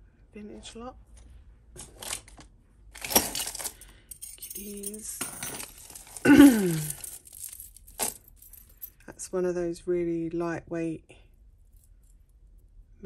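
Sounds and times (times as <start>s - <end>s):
jewellery clinking and jangling: 2.9s - 9.1s.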